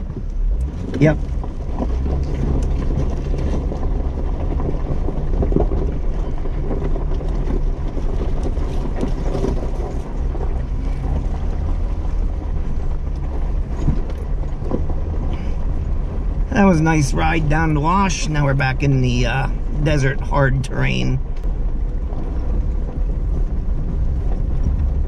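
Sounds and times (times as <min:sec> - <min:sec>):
low engine hum: 0:00.0 - 0:25.0.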